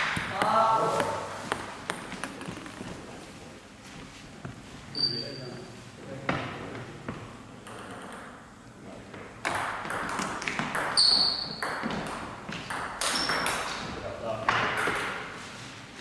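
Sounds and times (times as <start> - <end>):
table tennis ball knocking: 0.0 - 2.6, 9.2 - 13.9, 14.5 - 15.2
short high squeak: 4.9 - 5.6.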